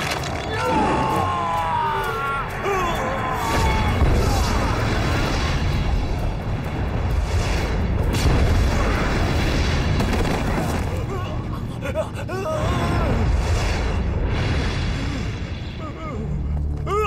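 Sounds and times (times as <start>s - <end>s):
shouts and grunts: 0.4s - 5.0s.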